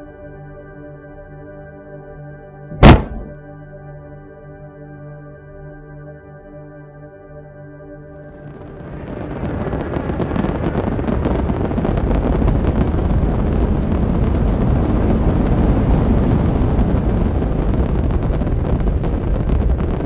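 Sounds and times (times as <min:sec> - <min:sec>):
rocket thrusters rumbling: 0:02.7 - 0:03.3.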